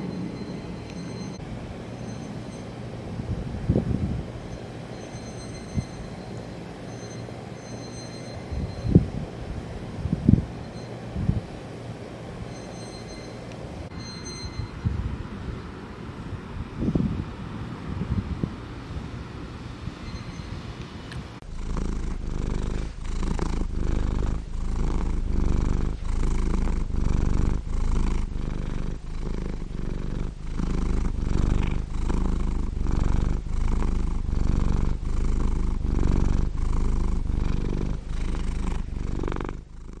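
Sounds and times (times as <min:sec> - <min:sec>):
cat purring: 0:21.4 - 0:40.0.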